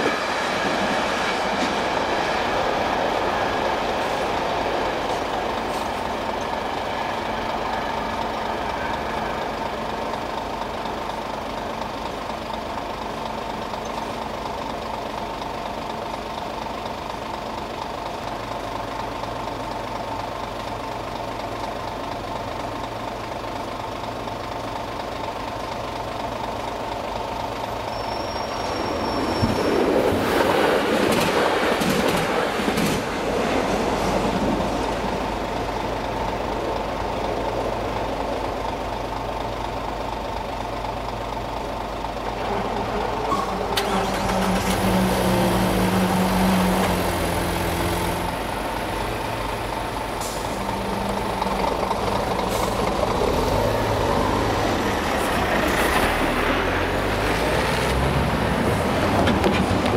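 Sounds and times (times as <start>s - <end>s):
lorry diesel engine: 0.0s - 59.9s
vehicle engines moving off: 42.2s - 59.9s.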